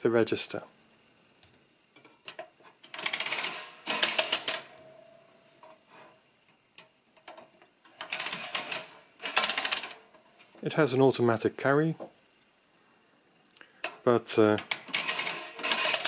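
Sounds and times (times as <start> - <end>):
toy adding machine metal clicks: 2.3 - 4.8, 8.0 - 10.0, 14.6 - 16.0.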